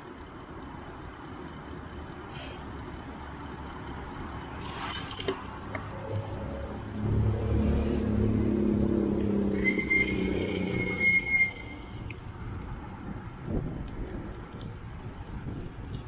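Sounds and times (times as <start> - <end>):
vehicle engine running: 0.0 - 16.0
high-pitched squeal: 6.0 - 12.2.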